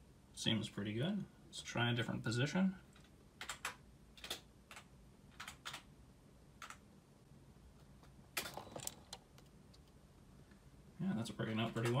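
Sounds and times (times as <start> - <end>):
keyboard keystrokes: 3.4 - 5.8.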